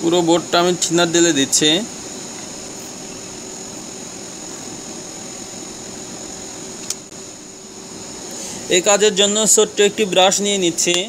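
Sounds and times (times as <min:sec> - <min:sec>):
high whine: 0:00.0 - 0:11.0
machine hum: 0:00.0 - 0:11.0
sharp click: 0:06.8 - 0:07.1.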